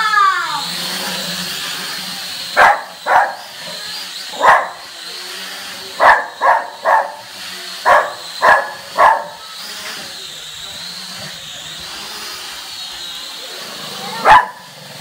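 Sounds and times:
drone propeller whine: 0.0 - 15.0
small dog barking: 2.6 - 3.5, 4.4 - 4.8, 6.0 - 9.4, 14.2 - 14.7.

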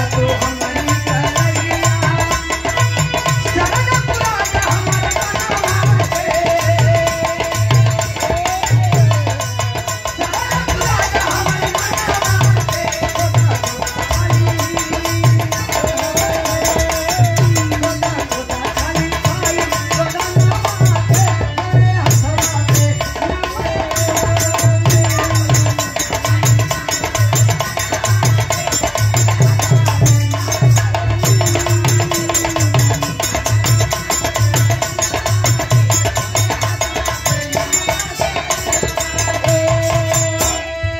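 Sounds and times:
hand drum beat: 28.6 - 34.8.

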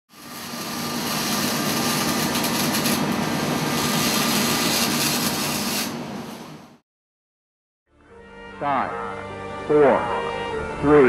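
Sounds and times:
rough grinding hiss: 0.1 - 6.0.

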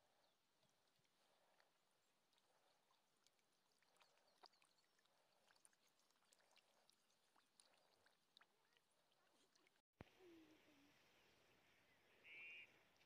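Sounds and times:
fish splashing in a puddle: 2.3 - 9.8.

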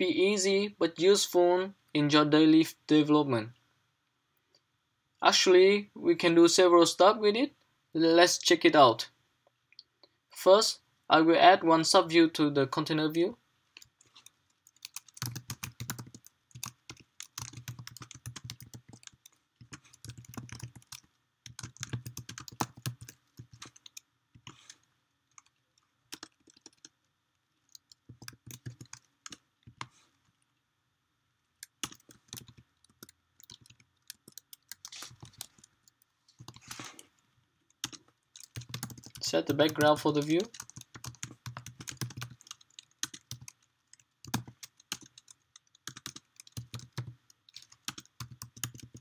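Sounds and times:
typing on a keyboard: 13.8 - 27.0, 27.7 - 29.9, 31.6 - 36.7, 37.7 - 49.0.

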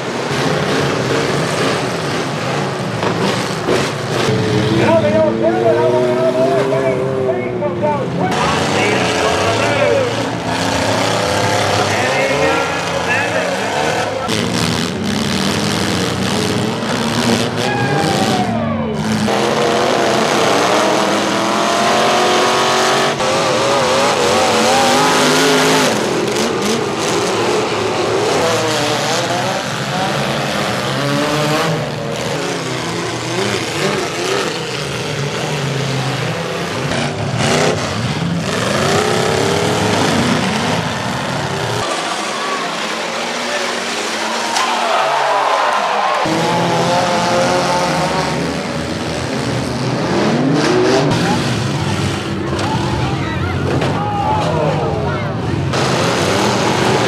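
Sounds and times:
car engines revving: 0.0 - 57.0
cars crashing: 0.0 - 57.0.

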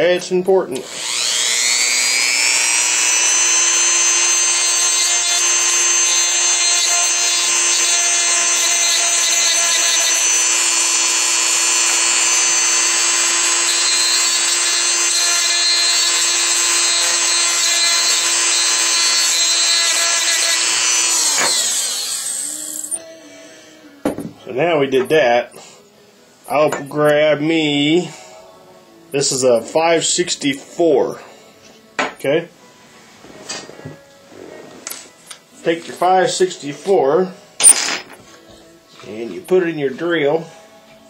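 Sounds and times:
rotary tool grinding whine: 0.8 - 23.0.

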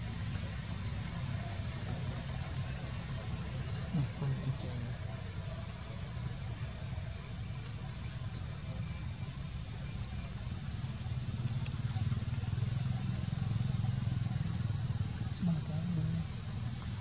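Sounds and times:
high-pitched insect drone: 0.0 - 17.0
faint ticks: 2.4 - 2.8, 9.8 - 14.6.

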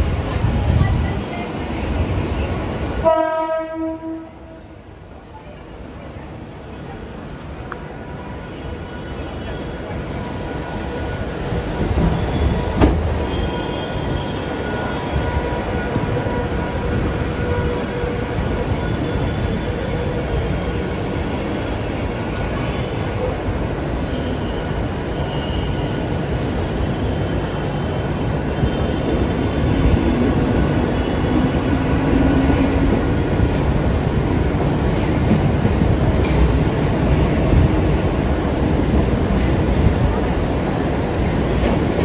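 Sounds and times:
train rumbling in station: 0.0 - 42.0.

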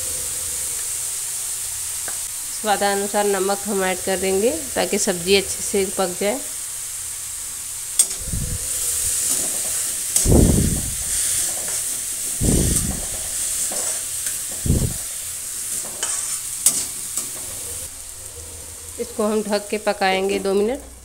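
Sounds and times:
vegetables sizzling in hot oil: 0.0 - 21.0
spatula stirring and scraping: 11.0 - 15.0, 15.6 - 17.8.

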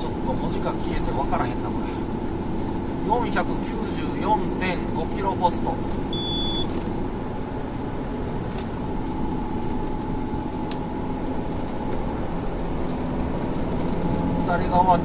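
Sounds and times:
car road noise inside cabin: 0.0 - 15.0
short high beep: 6.1 - 6.7.

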